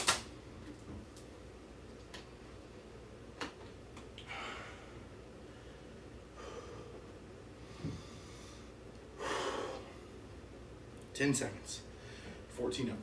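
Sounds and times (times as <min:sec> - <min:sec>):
man breathing hard: 0:04.2 - 0:10.3, 0:12.0 - 0:12.5.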